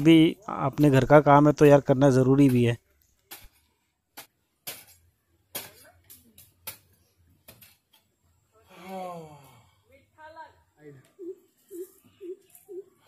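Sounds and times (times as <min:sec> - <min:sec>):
hoe chopping into soil: 0:02.4 - 0:07.8.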